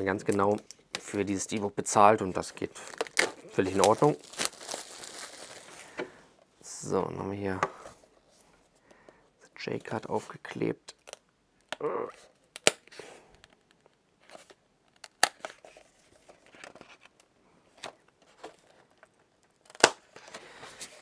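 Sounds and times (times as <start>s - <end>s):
paper tearing and crinkling: 2.8s - 5.8s.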